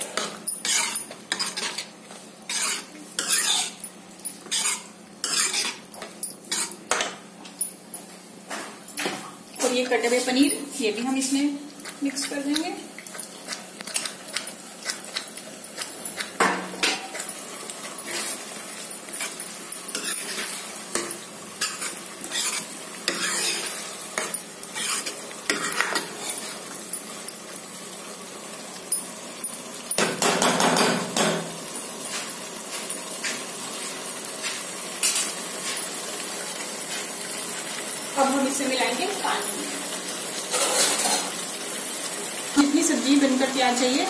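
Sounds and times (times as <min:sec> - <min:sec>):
faint sizzle: 0:00.0 - 0:44.0
spoon scraping pan: 0:00.2 - 0:03.8, 0:04.4 - 0:07.0, 0:11.8 - 0:26.6, 0:40.5 - 0:41.4.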